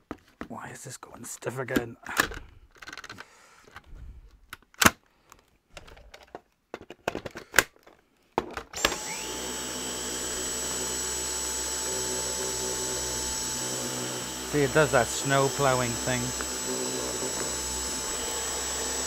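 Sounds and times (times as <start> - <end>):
vacuum cleaner handling clicks: 8.8 - 9.4, 16.2 - 18.7
vacuum motor whine: 8.8 - 19.0.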